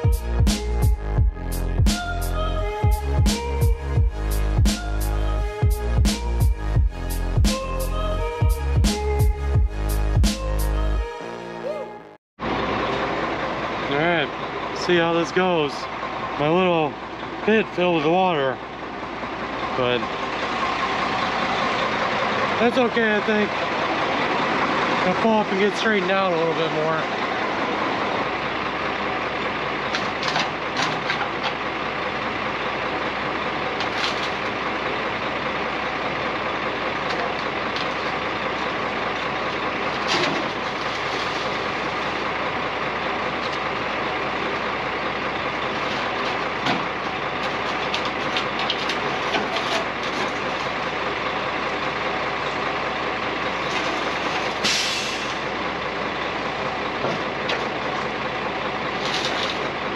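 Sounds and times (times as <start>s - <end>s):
truck engine running: 0.0s - 59.9s
sharp knocks and clunks: 57.0s - 57.8s.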